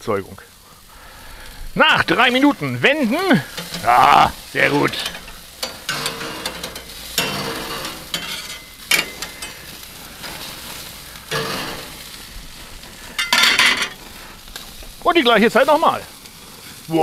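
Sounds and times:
burger patties sizzling on grill: 0.0 - 17.0
metal spatulas scraping grate: 3.4 - 14.0.

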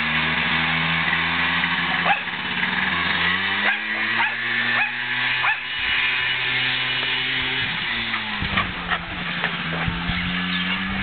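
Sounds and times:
quad engine running: 0.0 - 11.0
dog barking: 2.0 - 2.3, 3.6 - 5.7.

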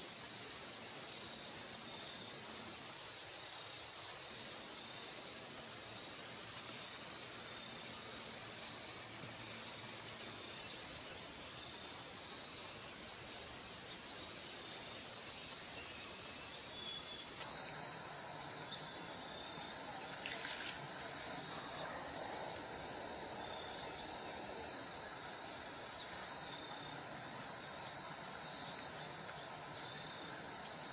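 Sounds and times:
insects chirping: 0.0 - 30.9
steady outdoor hiss: 0.0 - 30.9.

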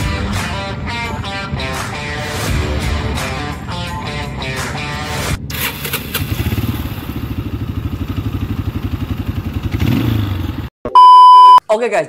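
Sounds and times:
motorcycle engine at low revs: 5.5 - 10.7.

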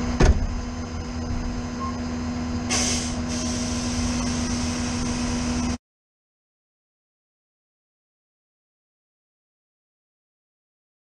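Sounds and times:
truck engine idling: 0.0 - 5.8
air hiss: 2.7 - 5.7.

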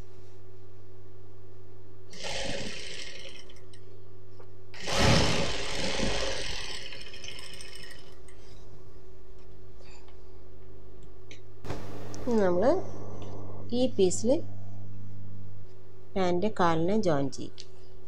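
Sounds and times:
sewing machine stitching: 2.1 - 3.6, 4.8 - 8.2
motor hum: 11.6 - 15.6.

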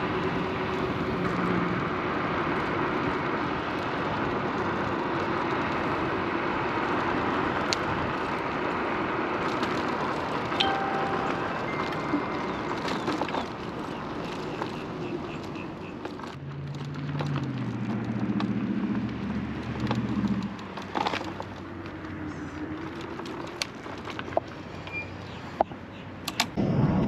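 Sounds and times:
motor vehicle engine hum: 0.0 - 27.0
wind and road noise: 0.0 - 27.0
sharp clicks: 26.2 - 26.6.

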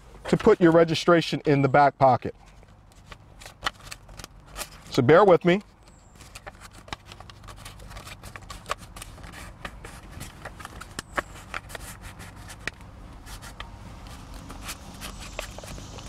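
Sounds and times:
plastic sleeve crinkling: 2.8 - 5.0, 5.7 - 16.0.

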